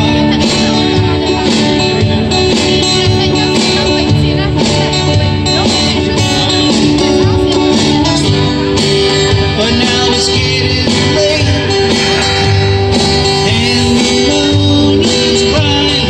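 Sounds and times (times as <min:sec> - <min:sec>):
acoustic guitars strumming: 0:00.0 - 0:16.0
man singing through a pa: 0:09.4 - 0:16.0.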